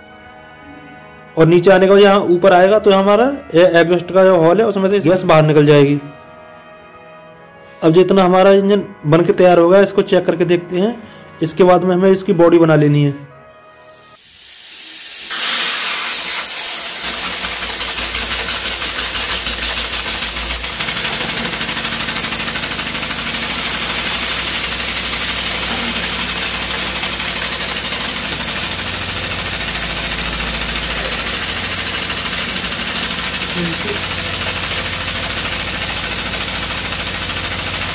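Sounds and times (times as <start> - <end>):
steam hissing: 13.7 - 37.9
steam engine chuffing: 14.4 - 37.9.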